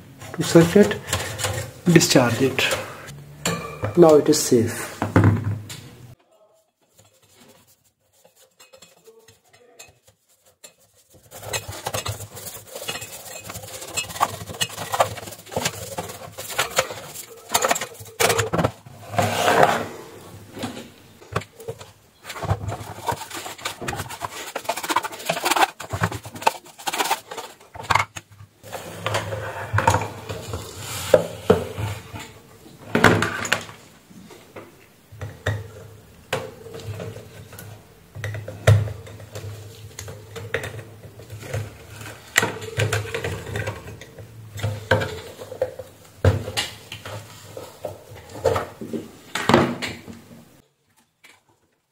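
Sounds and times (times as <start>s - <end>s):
plastic housing rubbing and clattering: 0.2s - 2.9s, 6.8s - 19.9s, 20.5s - 33.7s, 38.3s - 49.0s.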